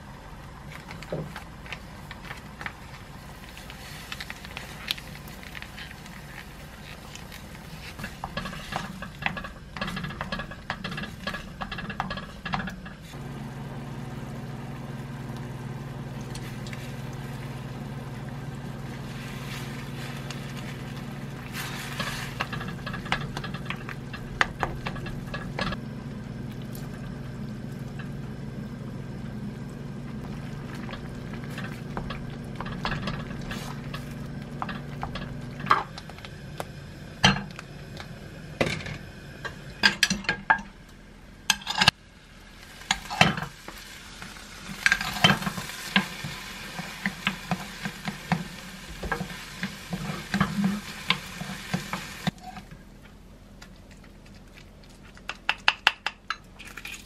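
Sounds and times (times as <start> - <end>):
rice sizzling: 0.0 - 40.8, 41.4 - 53.0
wooden spoon scraping a pot: 1.8 - 13.2, 18.2 - 25.8, 30.1 - 36.0, 44.7 - 52.7
low hum: 12.8 - 41.5.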